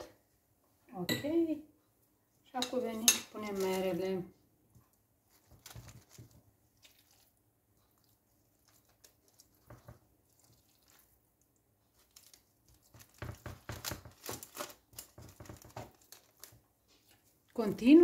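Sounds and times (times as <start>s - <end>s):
soft squishing of apple: 1.8s - 18.0s
parchment paper crinkling: 3.4s - 4.0s, 5.3s - 18.0s.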